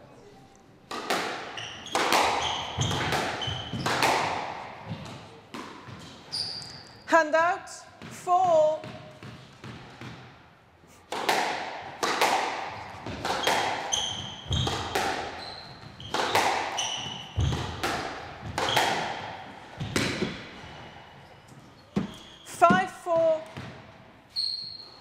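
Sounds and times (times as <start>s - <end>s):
squash ball hits echoing: 0.9s - 6.2s, 7.9s - 10.5s, 11.1s - 21.0s, 21.9s - 23.9s
shoes squeaking on court floor: 1.4s - 7.2s, 8.0s - 10.2s, 12.8s - 25.0s.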